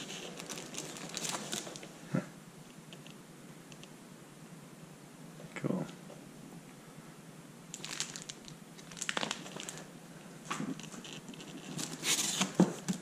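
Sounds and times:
packing materials rustling: 0.0 - 2.0, 7.7 - 13.0.

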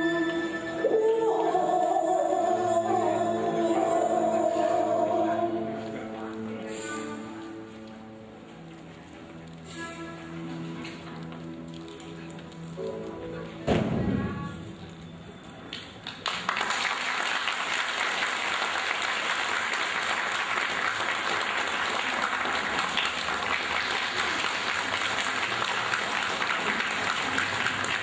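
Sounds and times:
audience applauding: 15.7 - 28.0.

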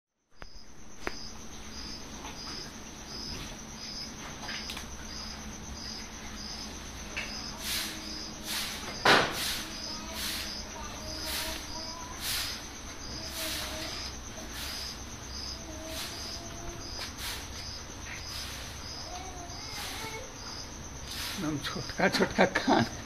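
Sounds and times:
cricket chirping: 0.2 - 23.0.

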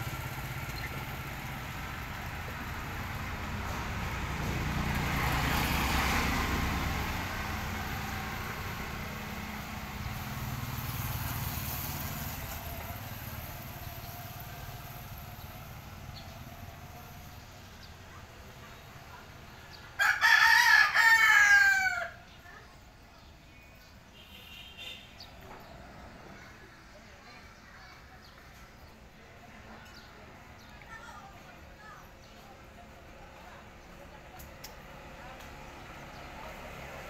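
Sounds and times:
motor scooter passing: 0.0 - 23.3, 29.5 - 37.0
small motorcycle passing: 0.0 - 23.3, 29.7 - 37.0
rooster crowing: 20.0 - 22.2.

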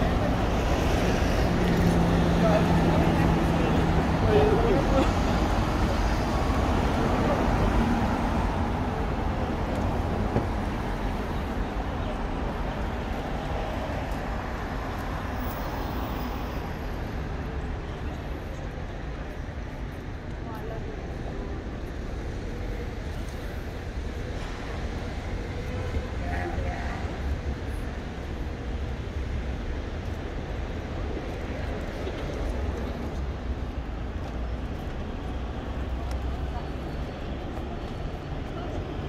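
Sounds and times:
road traffic rumble: 0.0 - 39.0.

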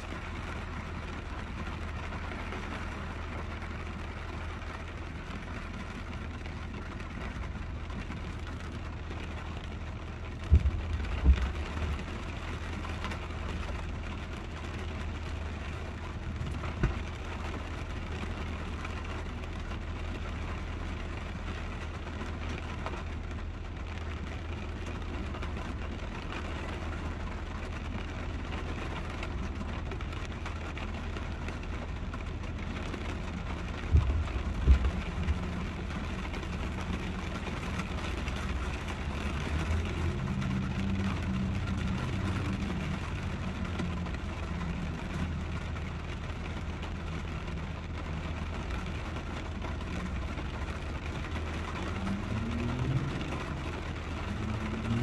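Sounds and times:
heavy rain drumming on vehicle: 0.0 - 55.0.

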